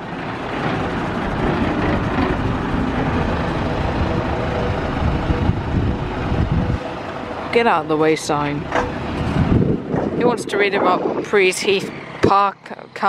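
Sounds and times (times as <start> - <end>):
lorry diesel engine driving past: 0.0 - 10.2.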